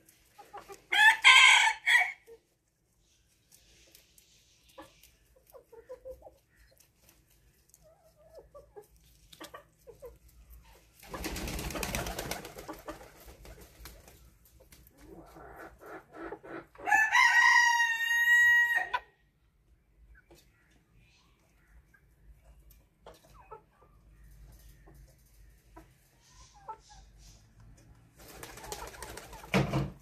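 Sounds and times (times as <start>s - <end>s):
rooster crowing: 16.8s - 19.0s.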